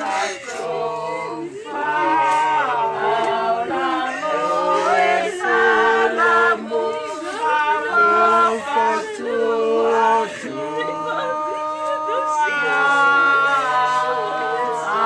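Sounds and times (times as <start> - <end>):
choir singing unaccompanied: 0.0 - 15.0.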